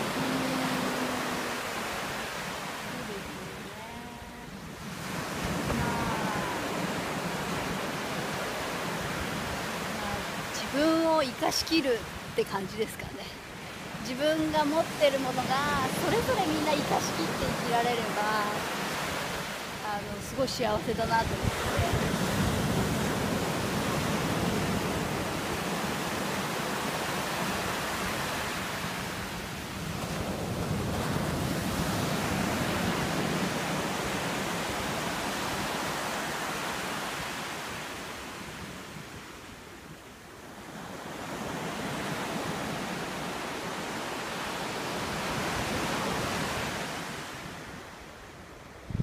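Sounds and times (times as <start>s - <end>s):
surf breaking on beach: 0.0s - 12.7s
wind buffeting microphone: 2.9s - 12.4s, 19.3s - 26.8s.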